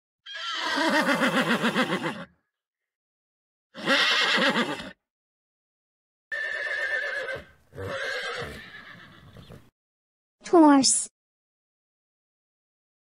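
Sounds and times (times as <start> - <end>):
horse whinnying: 0.2 - 2.4, 3.8 - 5.0, 6.3 - 9.7.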